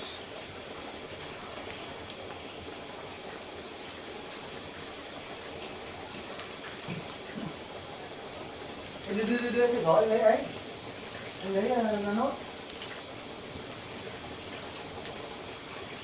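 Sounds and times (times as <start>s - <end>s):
cricket trilling: 0.0s - 16.0s
wood fire crackling: 0.0s - 16.0s.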